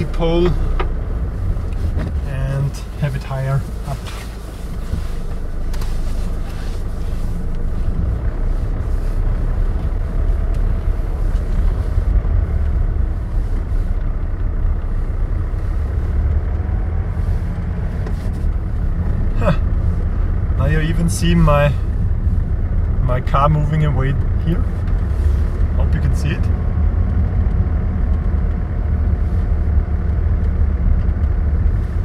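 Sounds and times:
car engine and tyre rumble: 0.0s - 32.0s.

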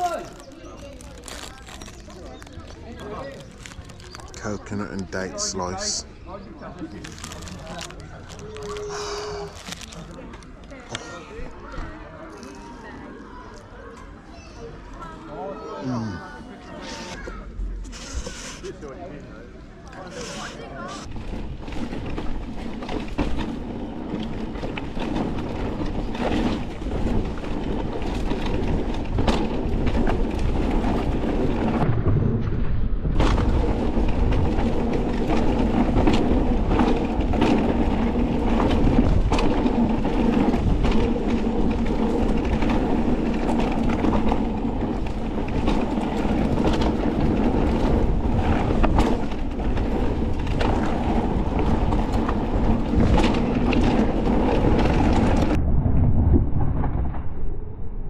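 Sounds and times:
bike knocks and rattles: 21.0s - 32.0s, 33.1s - 55.6s
wind rushing on microphone: 28.6s - 58.0s.

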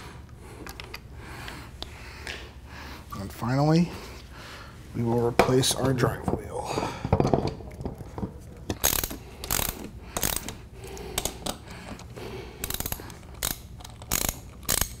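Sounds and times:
ratchet wrench clicking: 8.7s - 11.7s, 12.6s - 15.0s.

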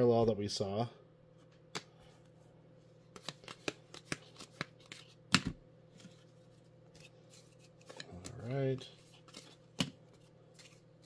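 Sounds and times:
trading cards flicked by hand: 3.1s - 5.6s.

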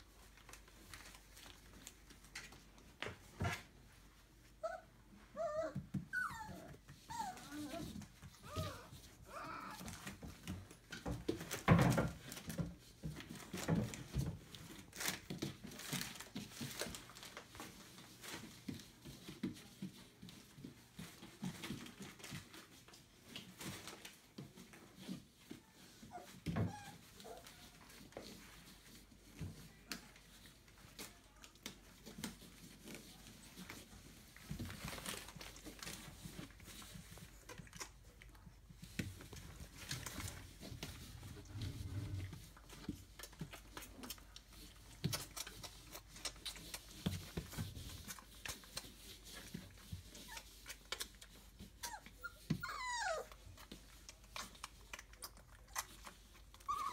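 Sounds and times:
puppies scuffling and rustling: 0.0s - 56.9s
puppy squeak: 5.4s - 7.8s, 51.8s - 53.3s, 56.6s - 56.9s.

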